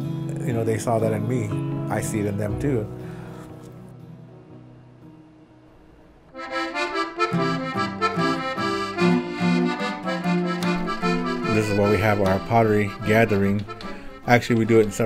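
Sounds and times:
reed instrument melody: 6.3s - 15.0s.

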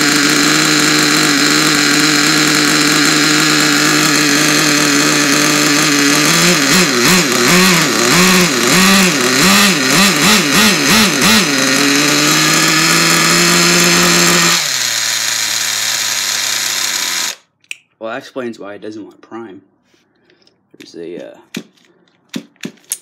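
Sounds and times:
rc truck nitro engine revving: 0.0s - 17.5s.

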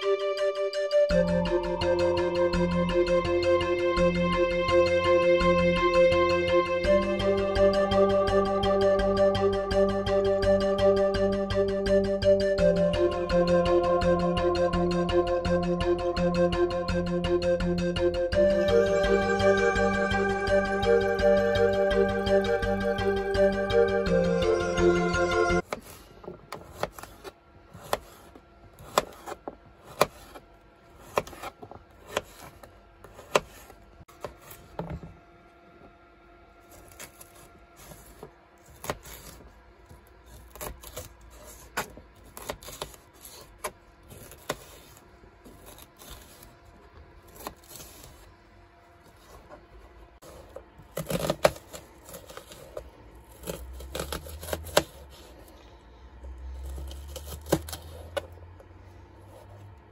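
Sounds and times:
knife chopping on plastic board: 25.7s - 27.2s, 28.8s - 30.4s, 33.1s - 34.9s.

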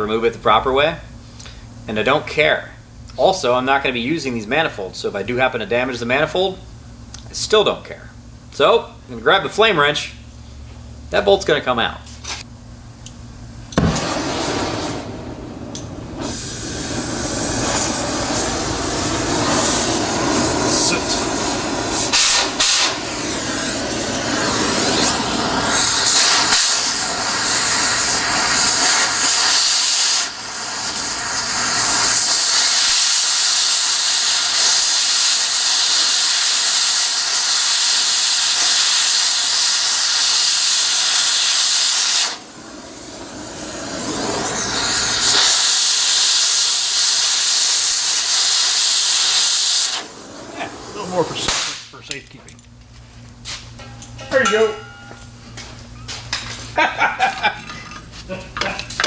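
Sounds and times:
cutting torch hissing: 13.7s - 52.0s.

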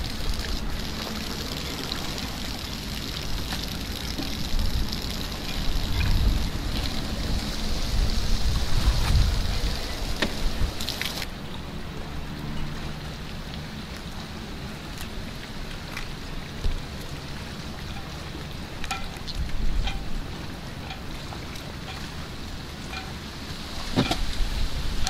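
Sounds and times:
wind buffeting microphone: 0.0s - 11.2s, 19.3s - 25.0s.

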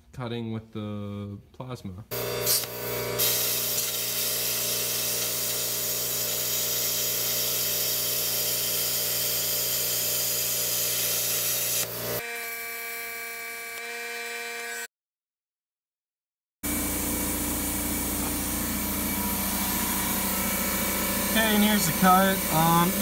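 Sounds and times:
plasma cutter hissing: 2.1s - 12.0s, 17.2s - 23.0s
steady hum: 16.7s - 23.0s.

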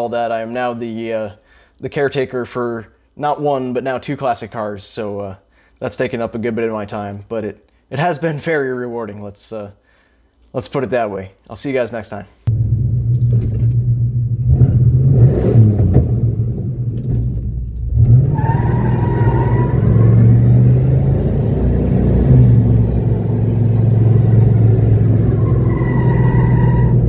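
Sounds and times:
car engine accelerating: 12.5s - 27.0s.

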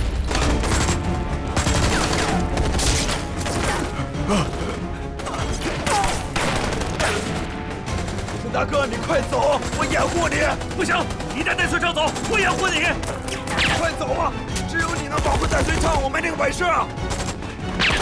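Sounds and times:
rapid gunshots: 0.0s - 16.3s, 16.9s - 18.0s
dramatic film score music: 0.0s - 18.0s
men shouting and crying out: 3.4s - 7.6s.

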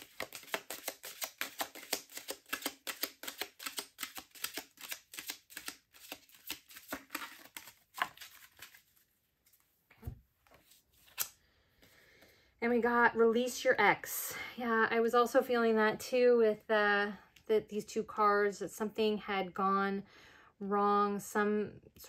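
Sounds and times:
cards being shuffled: 0.0s - 11.4s.

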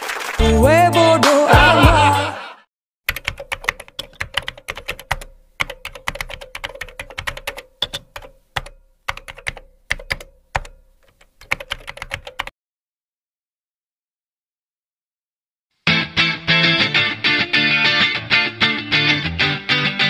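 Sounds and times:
computer keyboard typing: 3.1s - 12.5s.

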